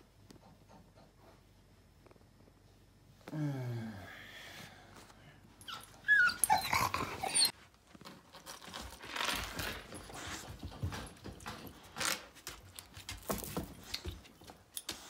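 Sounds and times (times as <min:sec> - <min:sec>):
dog whining: 0:05.6 - 0:07.6.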